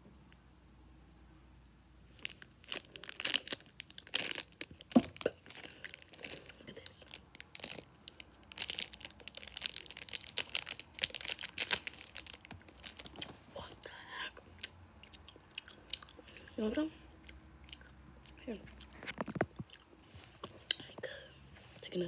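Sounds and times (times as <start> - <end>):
plastic wrapper crinkling and tearing: 2.1 - 13.4.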